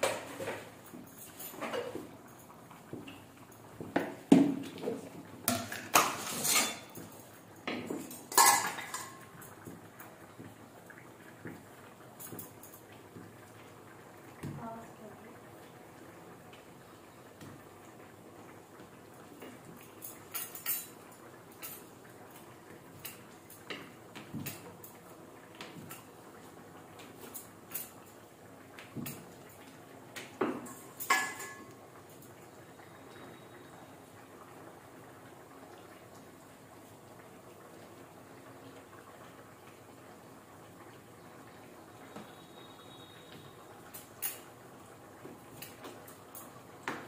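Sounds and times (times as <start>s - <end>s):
metal dishes clanking: 5.6s - 7.0s, 8.0s - 9.2s, 30.6s - 31.7s.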